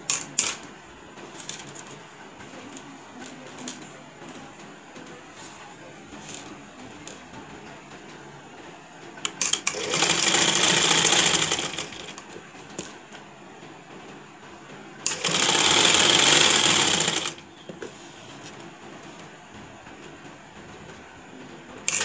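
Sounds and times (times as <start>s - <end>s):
sewing machine stitching: 9.2s - 12.9s, 15.0s - 17.5s.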